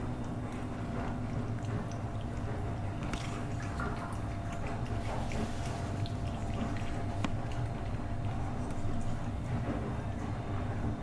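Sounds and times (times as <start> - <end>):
steady low hum: 0.0 - 11.0
cat licking: 1.0 - 9.4.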